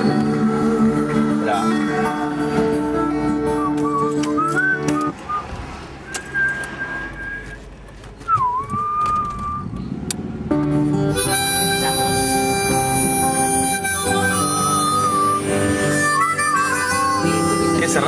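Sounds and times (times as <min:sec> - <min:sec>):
sparse melody with long notes: 0:00.0 - 0:04.2, 0:10.5 - 0:18.0
full music arrangement: 0:00.0 - 0:05.4, 0:10.1 - 0:18.0.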